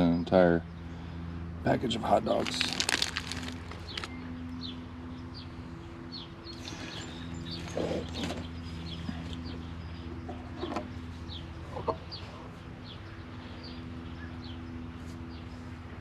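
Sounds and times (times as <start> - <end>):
steady low hum: 0.0 - 16.0
chickens clucking: 11.5 - 12.5.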